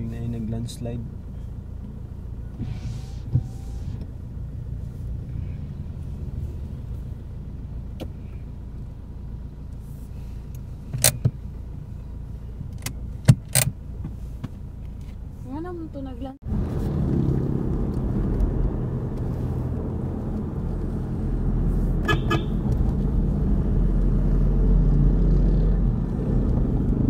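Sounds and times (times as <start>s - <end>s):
vehicle engine and road rumble: 0.0s - 27.0s
short hisses: 2.6s - 4.0s
sharp clicks and knocks: 12.7s - 15.0s.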